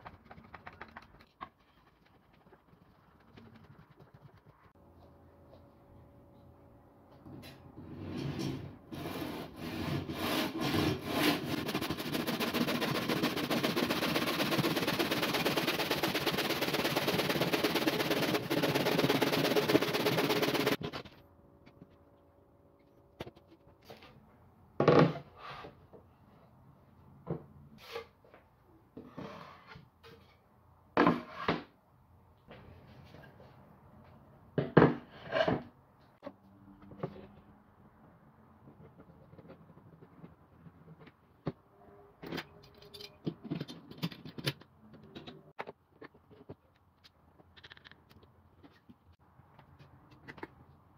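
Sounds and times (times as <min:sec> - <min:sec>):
hand saw cutting plywood: 0:08.9 - 0:20.8.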